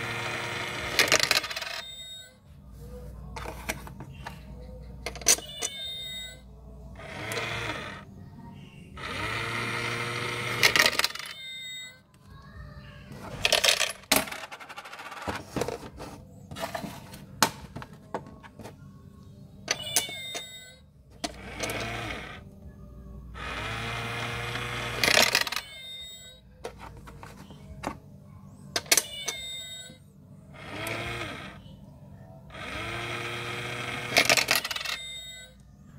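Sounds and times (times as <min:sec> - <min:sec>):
coin clattering down: 0:00.3 - 0:01.9, 0:10.1 - 0:11.3, 0:13.4 - 0:15.4, 0:24.6 - 0:25.8, 0:33.7 - 0:35.1
small motor whirring: 0:07.0 - 0:08.0, 0:09.0 - 0:10.8, 0:21.4 - 0:22.4, 0:23.4 - 0:25.2, 0:30.6 - 0:31.6, 0:32.5 - 0:34.6
electronic cat sounds: 0:19.6 - 0:20.8
toy clicking: 0:21.2 - 0:22.4, 0:32.6 - 0:35.2.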